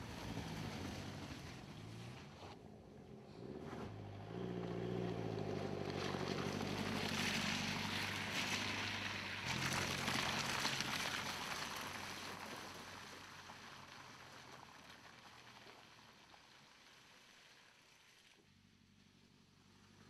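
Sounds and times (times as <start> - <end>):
car engine passing by: 0.0 - 16.6
tyres on dirt: 0.0 - 16.7.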